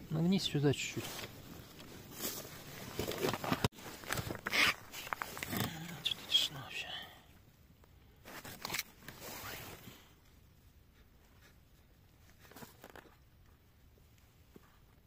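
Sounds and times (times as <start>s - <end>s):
faint rustling and scraping: 0.2s - 6.6s, 8.1s - 15.0s.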